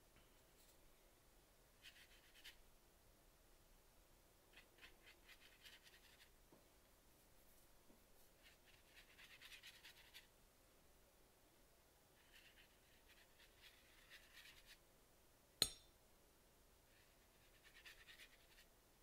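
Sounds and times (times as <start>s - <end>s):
brush scrubbing on paper: 8.4s - 10.3s.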